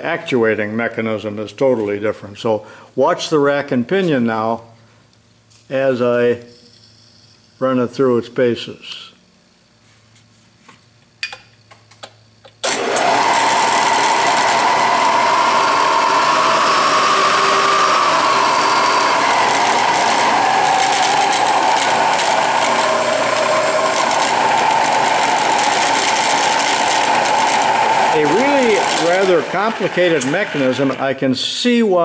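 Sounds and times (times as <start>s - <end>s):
drill press whirring: 12.6s - 31.2s.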